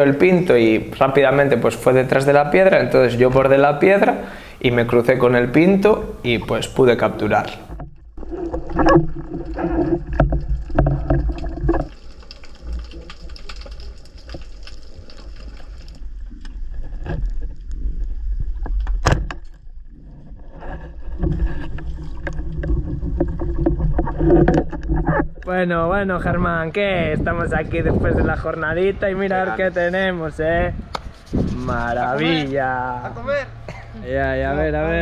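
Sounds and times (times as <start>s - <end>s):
underwater rumble: 7.5s - 28.6s.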